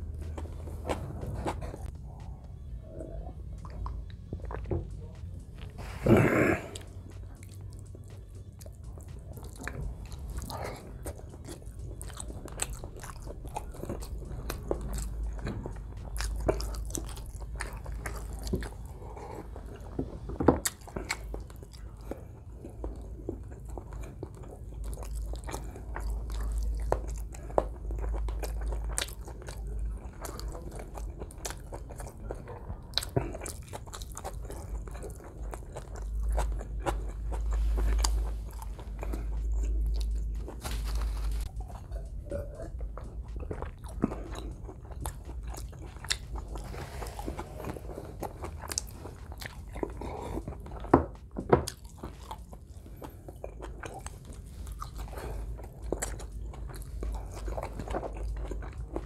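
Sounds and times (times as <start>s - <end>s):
person chewing food: 0.0s - 59.0s.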